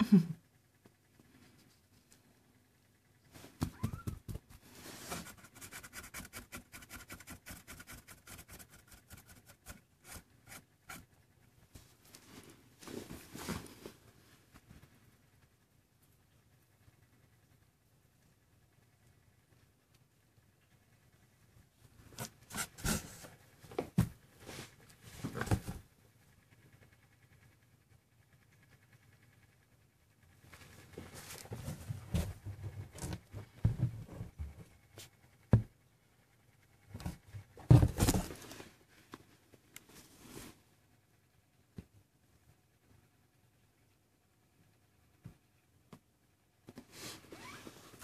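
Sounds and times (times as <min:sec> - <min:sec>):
kittens scrabbling on a towel: 0:03.3 - 0:05.2
kittens' claws scratching towel: 0:03.3 - 0:11.2, 0:22.1 - 0:23.4, 0:46.8 - 0:48.0.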